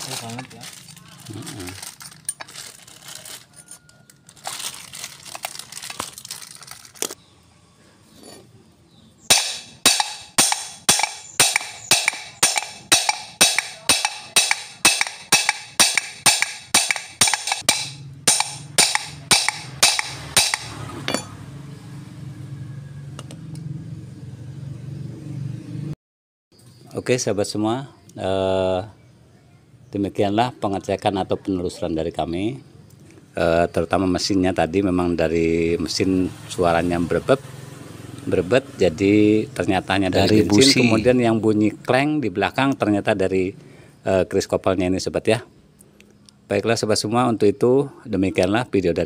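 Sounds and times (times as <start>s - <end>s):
hammer blows on steel: 9.3s - 21.3s.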